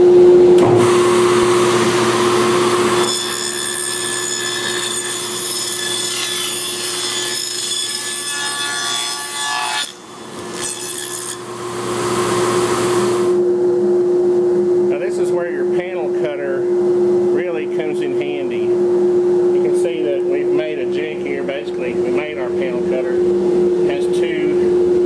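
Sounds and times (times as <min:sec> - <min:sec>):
dust collector hum: 0:00.0 - 0:07.6, 0:11.3 - 0:25.0
table saw cutting wood: 0:00.5 - 0:13.4
spinning saw blade whine: 0:00.6 - 0:07.0, 0:11.3 - 0:13.5.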